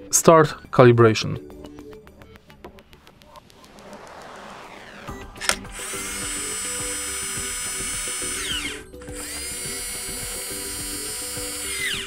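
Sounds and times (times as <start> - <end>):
electric motor whining: 3.7 - 12.0.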